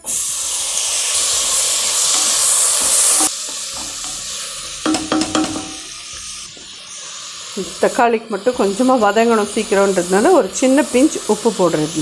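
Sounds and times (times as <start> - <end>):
tomatoes sizzling in oil: 0.0 - 12.0
wooden spoon knocking pan: 2.8 - 6.3.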